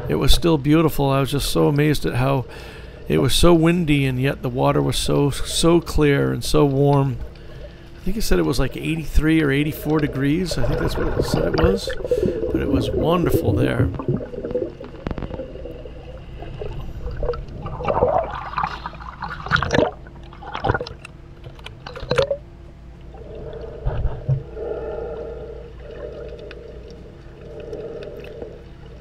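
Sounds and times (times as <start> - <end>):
swimmer breathing heavily: 2.5 - 3.1, 10.4 - 13.8, 23.2 - 29.0
water gushing and gurgling: 4.6 - 29.0.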